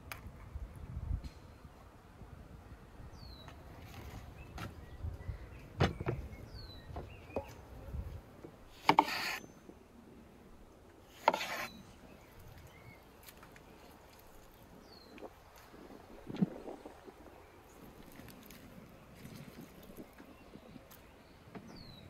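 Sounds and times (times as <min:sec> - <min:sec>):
knife chopping on wooden board: 0:08.8 - 0:09.4.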